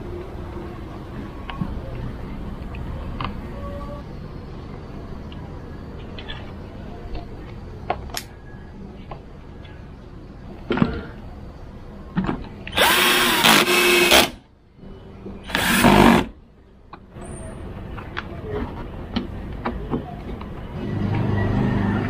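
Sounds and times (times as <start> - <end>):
cordless drill whining: 12.7 - 14.4, 15.5 - 16.3.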